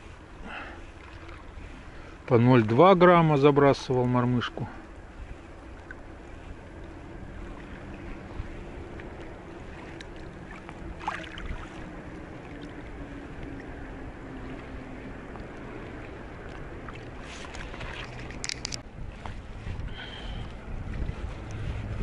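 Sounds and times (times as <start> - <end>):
faint droning tone: 0.0 - 22.0
low wind: 0.0 - 22.0
water noise: 0.0 - 22.0
handling clicks and rustles: 17.2 - 18.8.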